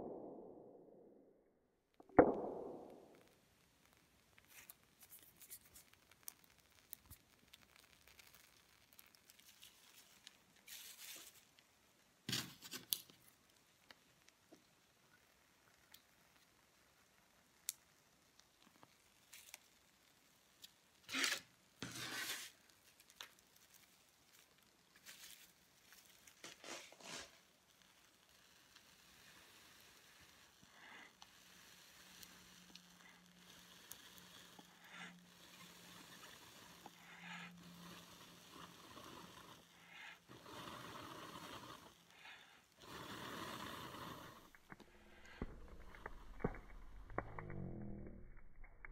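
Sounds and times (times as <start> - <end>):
faint clicks of small objects: 2.0 - 21.5, 22.5 - 38.7.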